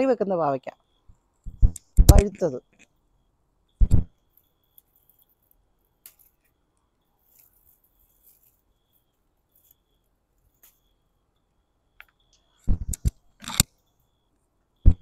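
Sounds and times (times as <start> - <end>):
garden scissors snipping: 1.7 - 2.6.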